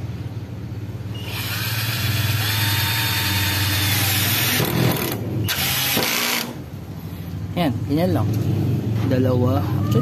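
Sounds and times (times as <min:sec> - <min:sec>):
cordless drill motor whine: 0:01.2 - 0:06.5.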